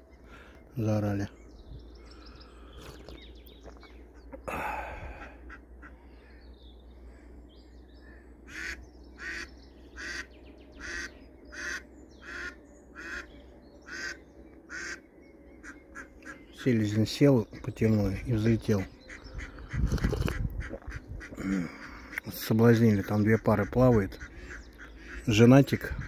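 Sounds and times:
duck quacking: 8.5s - 13.3s, 13.9s - 15.0s, 19.1s - 22.3s.

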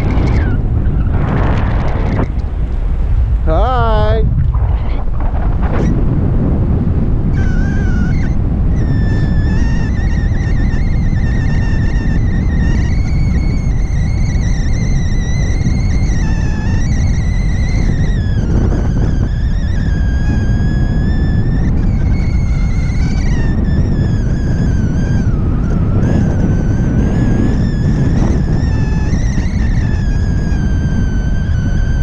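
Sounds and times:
wind rushing over microphone: 0.0s - 32.0s
high wavering whistle: 7.3s - 32.0s.

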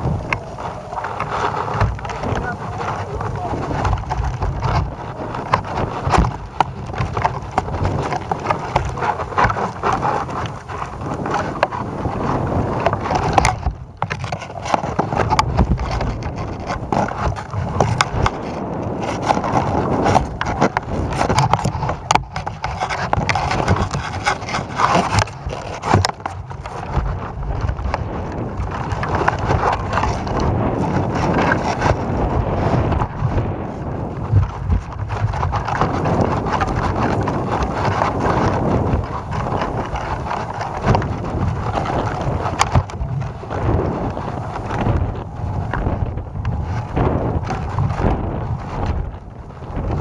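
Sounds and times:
camera rig knocking and scraping: 0.0s - 11.8s, 12.8s - 28.0s, 34.3s - 45.0s
wind rumbling on microphone: 0.0s - 50.0s.

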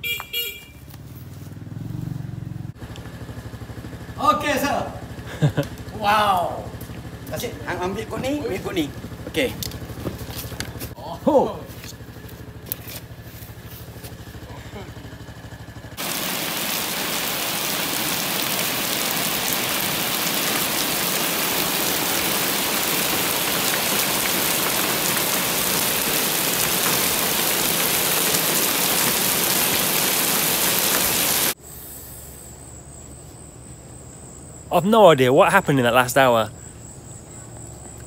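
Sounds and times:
rain falling on pavement: 5.1s - 11.0s, 16.0s - 31.6s
high insect drone: 11.3s - 38.0s.

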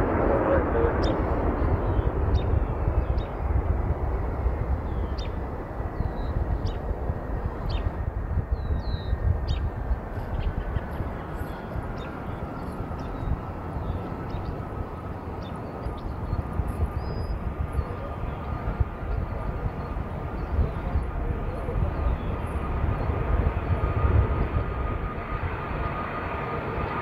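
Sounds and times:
distant jet engines rumbling: 0.0s - 27.0s
small birds chirping: 4.9s - 23.2s.

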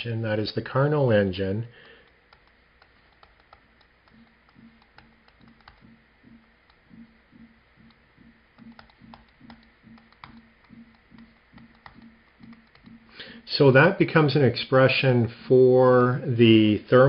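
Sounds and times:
stylus tapping on screen: 1.7s - 13.2s
soft low pulse: 2.3s - 13.1s.

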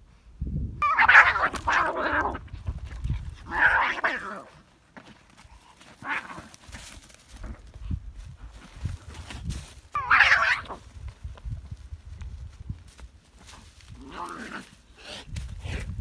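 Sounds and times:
cats screeching while fighting: 0.8s - 2.4s, 3.4s - 4.5s, 6.0s - 6.5s, 9.9s - 10.8s.

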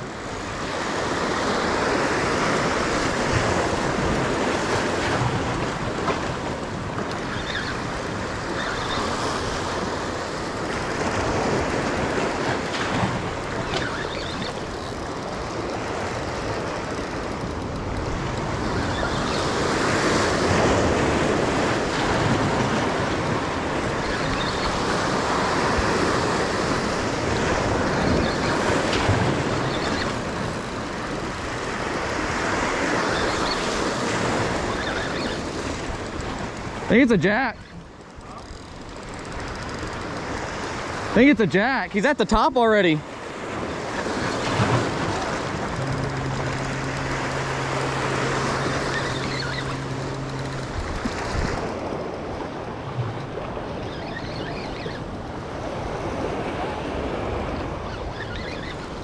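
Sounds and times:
surf washing against rocks: 0.0s - 59.0s
wind on microphone: 43.2s - 59.0s.

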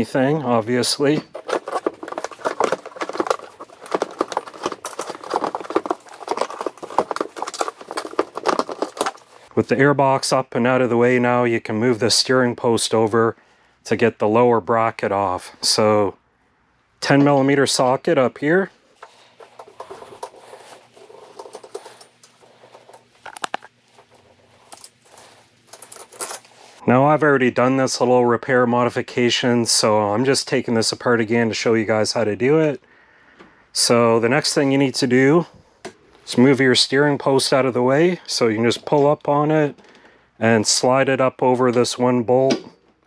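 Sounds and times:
plastic knocks and scrapes: 1.2s - 9.5s.

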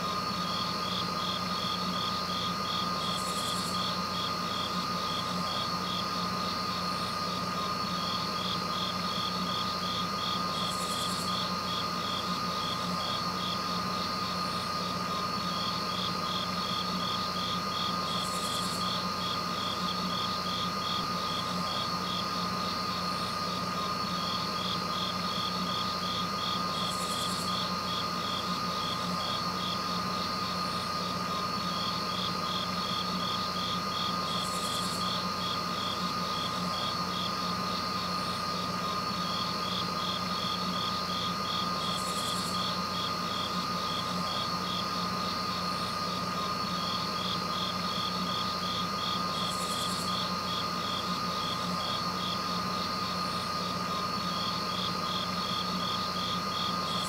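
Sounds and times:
insects chirping in rapid pulse: 0.0s - 57.0s.

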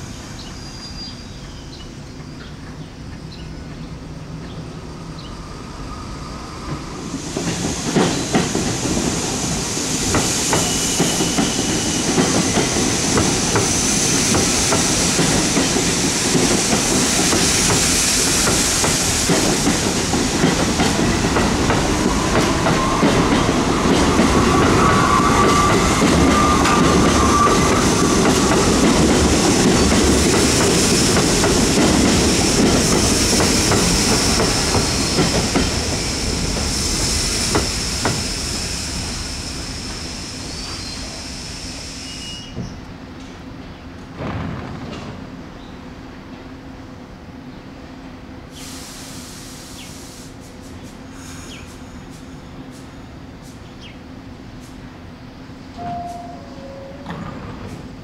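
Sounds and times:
subway train wheels clacking on rails: 0.0s - 58.0s
faint wheel squeal: 39.9s - 42.8s.

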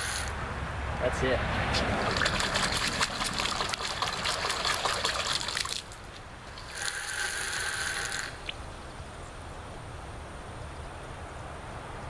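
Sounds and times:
water splashing: 1.7s - 6.6s.

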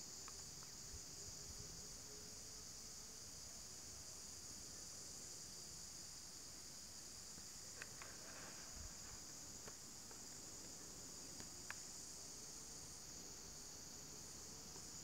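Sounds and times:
insect chorus: 0.0s - 15.0s
faint clicks: 7.7s - 8.2s, 11.3s - 11.8s.

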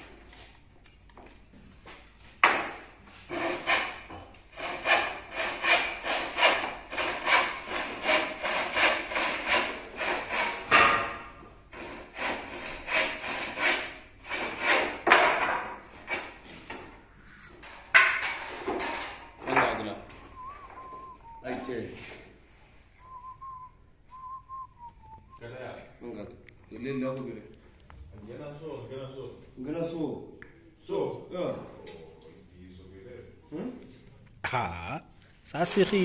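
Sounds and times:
handsaw cutting timber: 3.3s - 10.8s, 11.7s - 15.1s.

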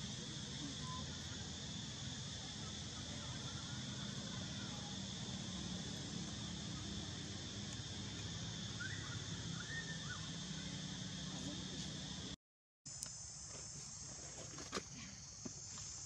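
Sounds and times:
insect drone: 0.0s - 16.0s
faint high chirps: 0.6s - 5.2s, 8.6s - 11.6s.

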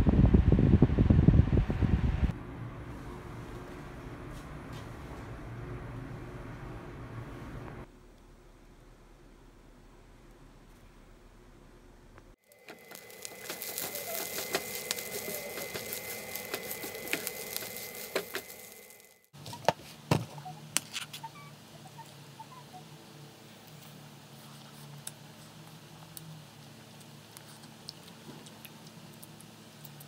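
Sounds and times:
fried rice sizzling in a pan: 12.4s - 19.2s
high whine: 12.4s - 19.3s.

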